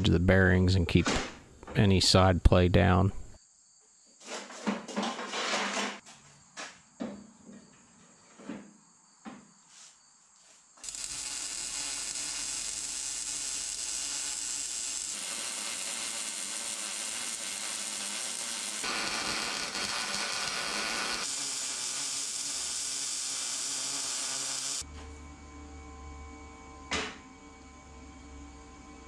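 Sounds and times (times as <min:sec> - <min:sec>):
welding arc crackling hiss: 0:10.8 - 0:24.9.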